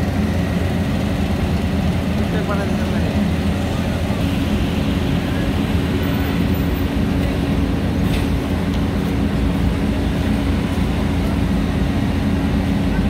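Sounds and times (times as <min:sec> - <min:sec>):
paver diesel engine droning: 0:00.0 - 0:13.0.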